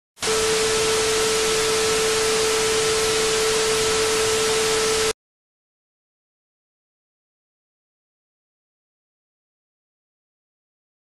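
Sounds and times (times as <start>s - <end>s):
steady test tone: 0.2s - 5.2s.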